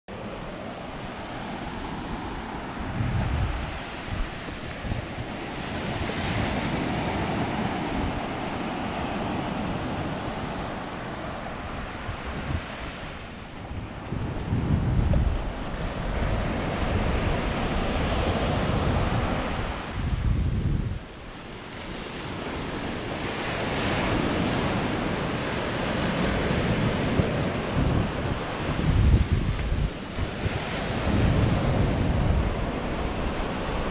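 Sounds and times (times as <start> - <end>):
small waves breaking on sand: 0.1 - 33.9
surf washing up a beach: 0.1 - 33.9
wind buffeting microphone: 0.1 - 33.9.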